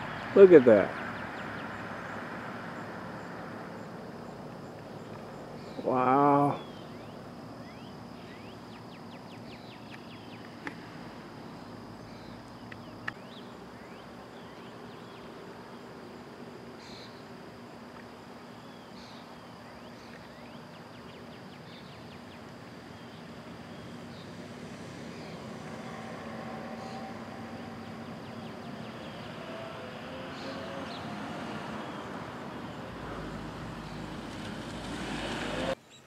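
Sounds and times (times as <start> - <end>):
high insect trill: 0.0 - 36.0
bird chirps: 6.5 - 10.6.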